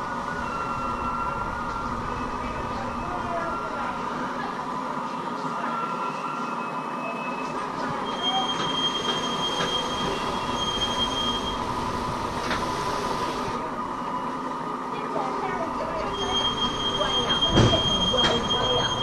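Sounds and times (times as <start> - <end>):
high metallic squeals: 6.1 - 11.9, 16.0 - 19.0
train carriages rolling on rails: 7.3 - 19.0.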